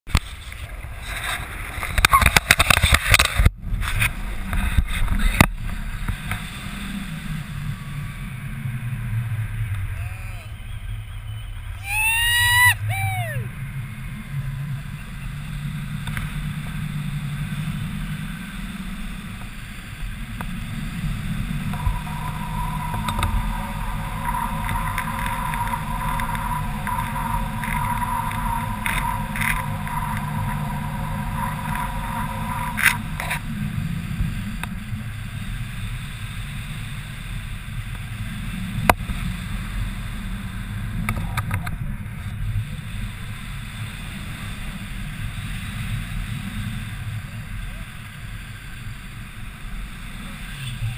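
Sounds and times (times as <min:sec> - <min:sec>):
wind rumbling on microphone: 0:00.1 - 0:50.9
steady high tone: 0:21.6 - 0:33.6.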